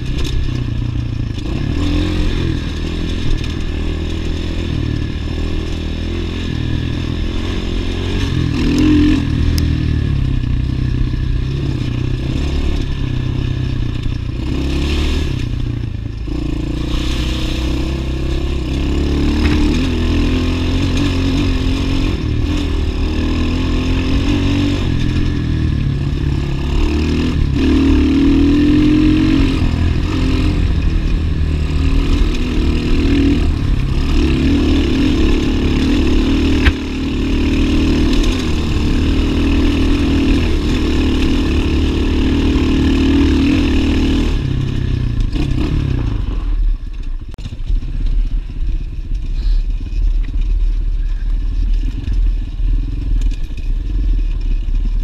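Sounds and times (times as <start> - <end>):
dirt bike engine revving: 0.0 - 46.8
bike rattling over stones: 46.4 - 55.0.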